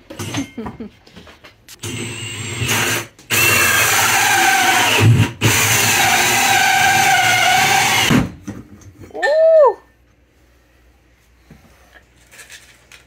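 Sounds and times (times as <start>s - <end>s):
power drill with hole saw: 1.8s - 8.3s.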